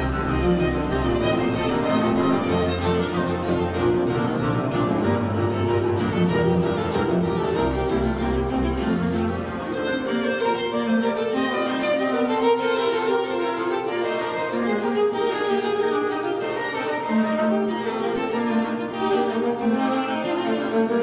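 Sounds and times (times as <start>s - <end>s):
low sustained bass notes: 0.0s - 10.8s
bowed strings music: 0.0s - 21.0s.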